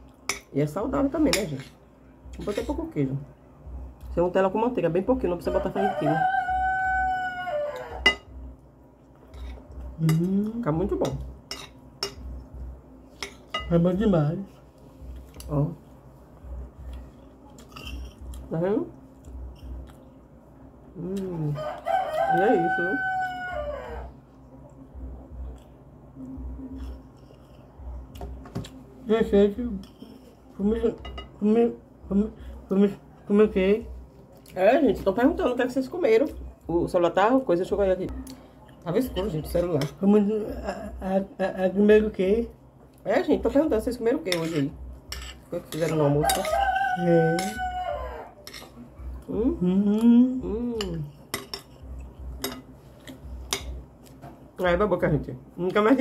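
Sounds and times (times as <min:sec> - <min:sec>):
rooster crowing: 0:05.5 - 0:08.2, 0:21.4 - 0:24.2, 0:46.2 - 0:48.5
cutlery scraping on plates: 0:07.8 - 0:08.3, 0:09.3 - 0:10.2, 0:11.0 - 0:12.3, 0:17.6 - 0:18.2, 0:44.3 - 0:46.7, 0:47.3 - 0:47.7, 0:48.4 - 0:48.8, 0:50.8 - 0:53.8
person's wavering vocal sounds: 0:49.3 - 0:51.1.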